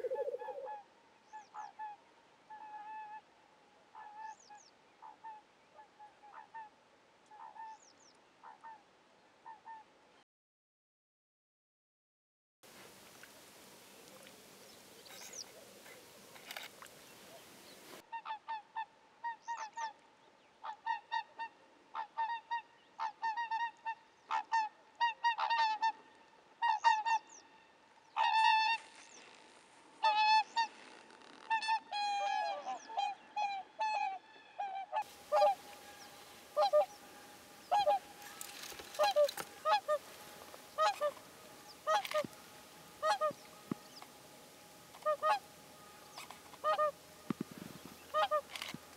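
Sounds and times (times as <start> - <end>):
swans honking: 0.0 - 0.8, 20.6 - 29.2, 30.0 - 48.9.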